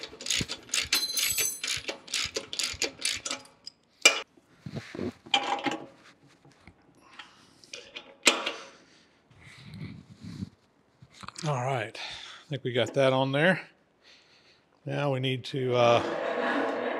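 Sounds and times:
ratchet wrench clicking: 0.0s - 4.2s
metal clicks and knocks: 0.0s - 4.3s.

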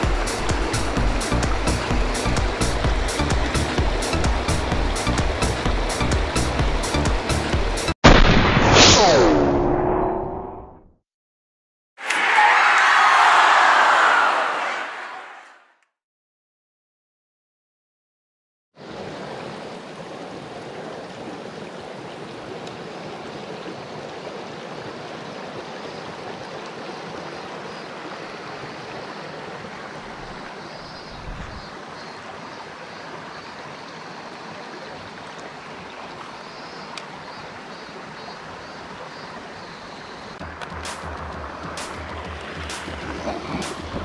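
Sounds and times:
stream rushing over rocks: 0.0s - 8.0s, 18.8s - 44.0s.

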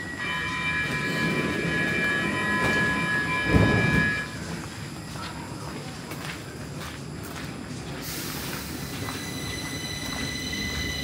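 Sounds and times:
train high steady chord: 0.0s - 4.5s.

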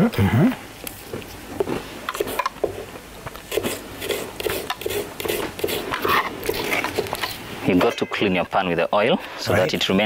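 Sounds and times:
cookware and utensils tapping: 7.8s - 8.3s.

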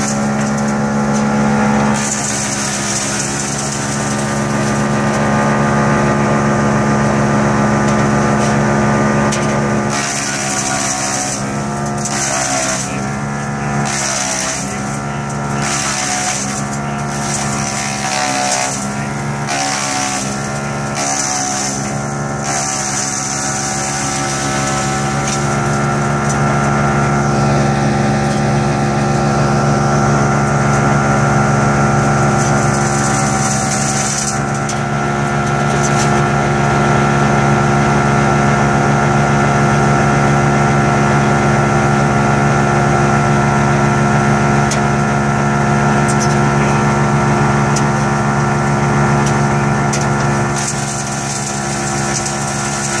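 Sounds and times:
wood chipper humming: 0.0s - 53.0s
branches cracking: 13.8s - 26.8s.

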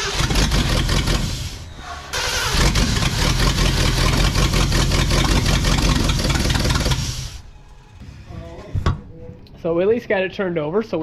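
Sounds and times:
engine cranking on starter: 0.0s - 7.4s.

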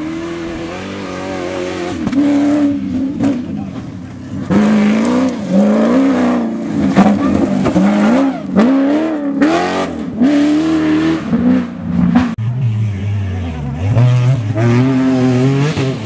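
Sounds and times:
pickup engine revving hard: 4.4s - 12.3s, 13.8s - 16.0s.

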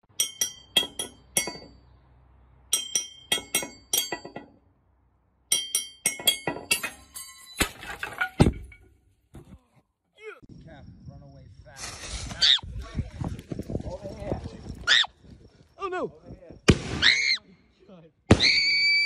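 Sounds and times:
glass bottle clinking: 0.2s - 1.7s, 2.7s - 4.6s, 5.5s - 8.9s.

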